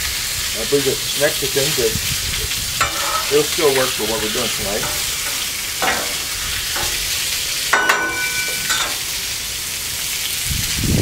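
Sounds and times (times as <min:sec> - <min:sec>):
chicken sizzling on a griddle: 0:00.0 - 0:11.0
metal spatula scraping: 0:02.8 - 0:09.2
metal clank: 0:02.8 - 0:09.3.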